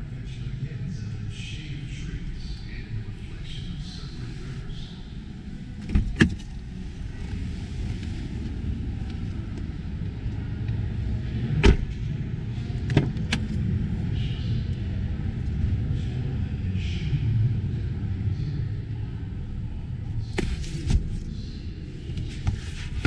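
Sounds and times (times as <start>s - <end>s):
car doors knocking and clicking: 11.6s - 11.9s.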